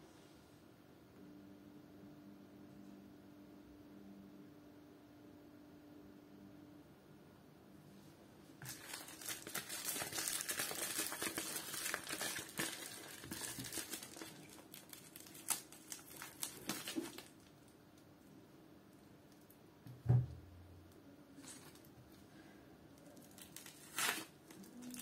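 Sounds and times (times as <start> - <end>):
plastic bag crinkling: 8.6 - 17.7, 23.0 - 25.0.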